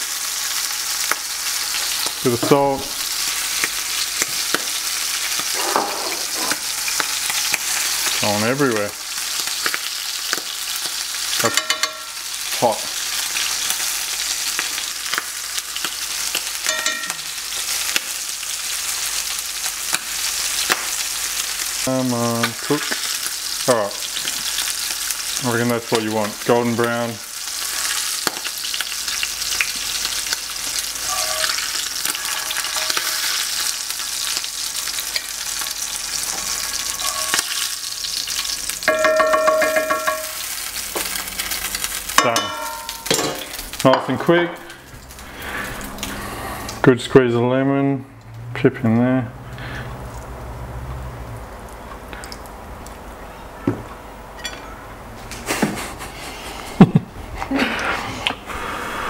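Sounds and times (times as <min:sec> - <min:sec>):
food sizzling in hot oil: 0:00.0 - 0:46.8
metal tongs clicking on pan: 0:11.5 - 0:12.1
short pitched tone: 0:31.0 - 0:31.6.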